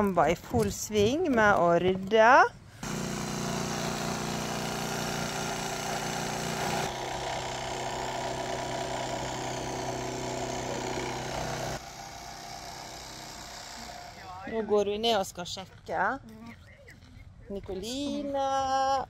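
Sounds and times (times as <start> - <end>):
motor humming: 2.8 - 14.2.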